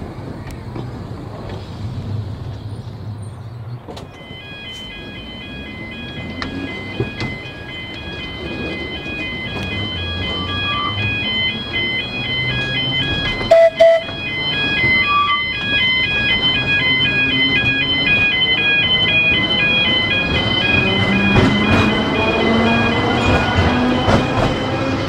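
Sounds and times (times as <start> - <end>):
tram running over crossing: 0.0 - 25.0
level-crossing alarm warbling: 4.1 - 25.0
loud horn blasts: 13.4 - 14.2.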